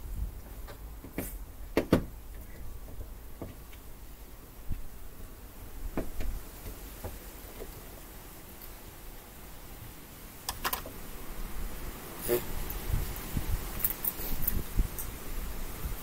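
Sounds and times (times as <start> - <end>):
wind rumbling on microphone: 0.0 - 3.6, 4.6 - 8.0, 10.6 - 16.0
clicks and knocks of wiring work: 10.5 - 10.9.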